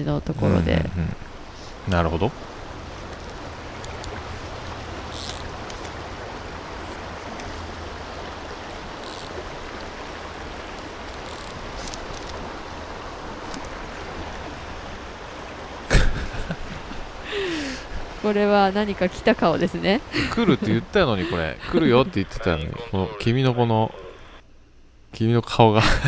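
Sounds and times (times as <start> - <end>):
stream rushing over rocks: 0.3 - 18.5.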